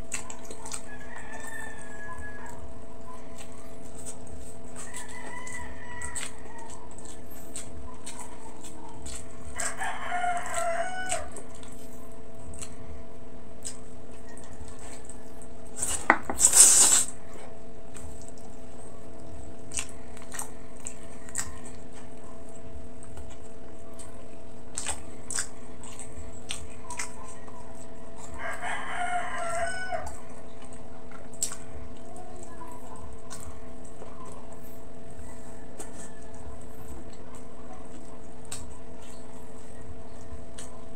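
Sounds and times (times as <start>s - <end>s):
wet clicks of eating: 0.0s - 17.2s, 17.9s - 40.9s
steady low hum: 0.0s - 40.9s
rooster crowing: 0.8s - 2.6s, 4.8s - 7.0s, 9.5s - 11.5s, 28.2s - 30.3s, 35.1s - 36.6s.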